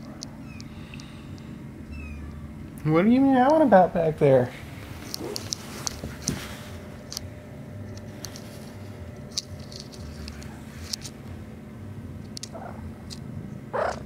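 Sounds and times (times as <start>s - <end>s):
kitten paws pattering on carpet: 4.7s - 7.1s.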